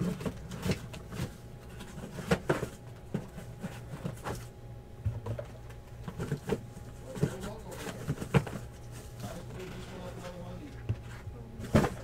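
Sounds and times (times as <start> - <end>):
steady low hum: 0.0 - 12.0
boxes knocking on a counter: 11.6 - 12.0.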